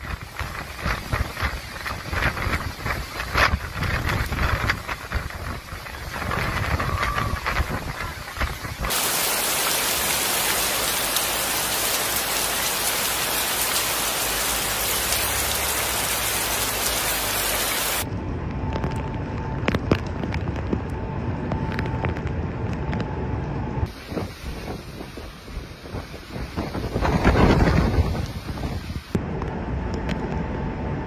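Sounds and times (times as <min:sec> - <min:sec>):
heavy rain hiss: 0:00.0 - 0:18.1, 0:23.9 - 0:29.2
low rumble: 0:00.0 - 0:31.0.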